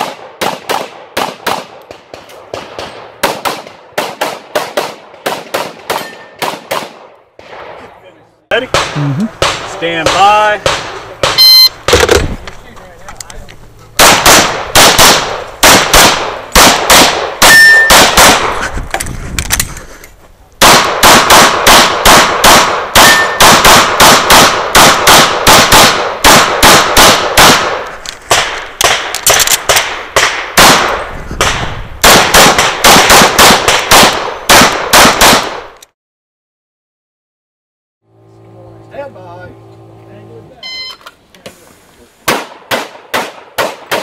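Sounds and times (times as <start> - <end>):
pistol shots in rapid strings: 14.0 - 18.5, 20.6 - 35.6.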